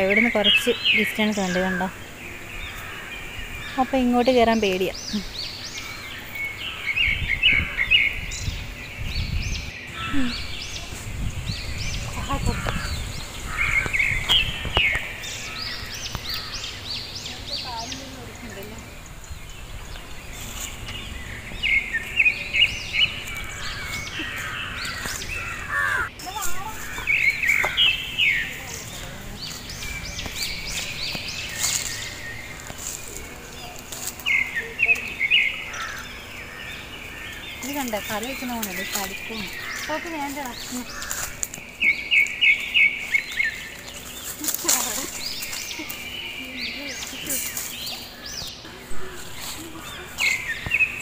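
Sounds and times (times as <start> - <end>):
birds chirping: 0.0 - 51.0
low uneven rumble: 0.0 - 51.0.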